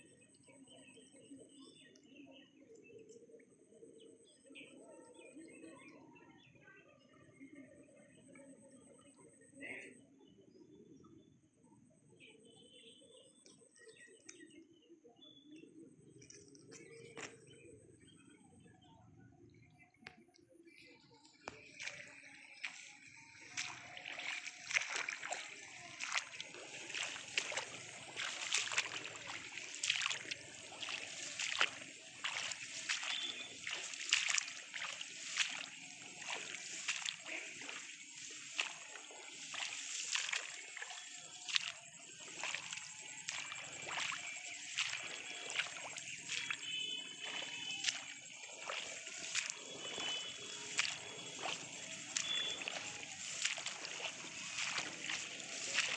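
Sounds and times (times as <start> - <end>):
sloshing footsteps in water: 0.0 - 6.4, 16.0 - 18.9, 19.6 - 55.9
leaves rustling: 23.8 - 55.9.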